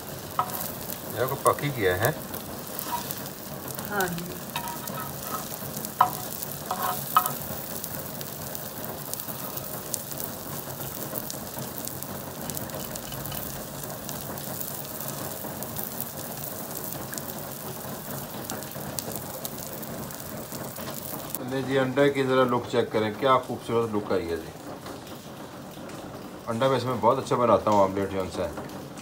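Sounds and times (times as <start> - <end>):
omelette sizzling in oil: 0.0 - 25.8
metal spatula knocking pan: 0.4 - 0.9, 4.5 - 7.5.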